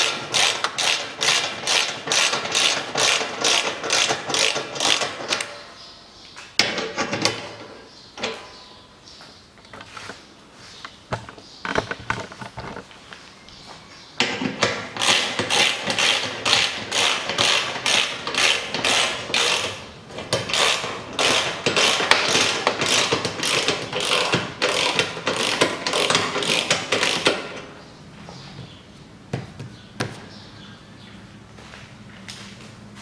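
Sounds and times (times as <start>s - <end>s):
ratchet wrench clicking: 0.0s - 5.5s, 15.0s - 27.6s.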